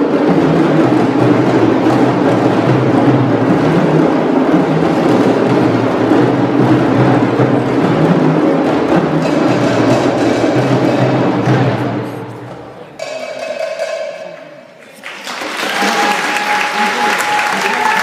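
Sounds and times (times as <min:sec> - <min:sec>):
hand drums playing fast rhythm: 0:00.0 - 0:12.3, 0:13.0 - 0:14.4
applause: 0:14.8 - 0:18.0.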